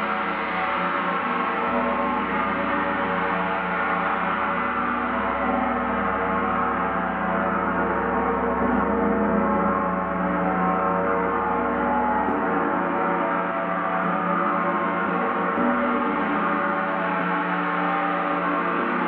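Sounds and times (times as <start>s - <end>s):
gong ringing continuously: 0.0s - 19.0s.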